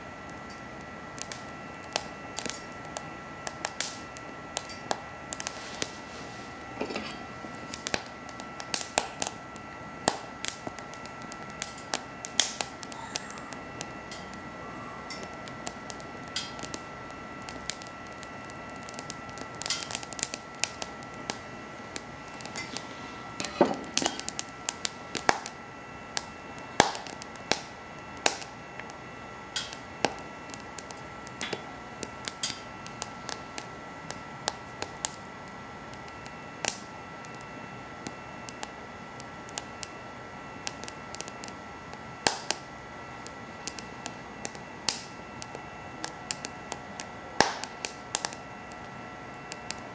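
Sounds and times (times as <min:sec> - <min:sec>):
faint high whine: 0:00.0 - 0:49.9
steady hiss: 0:00.0 - 0:49.9
wood fire crackling: 0:00.0 - 0:49.9
sharp pops: 0:26.2 - 0:29.0, 0:42.3 - 0:42.6, 0:43.6 - 0:46.5, 0:47.4 - 0:48.4.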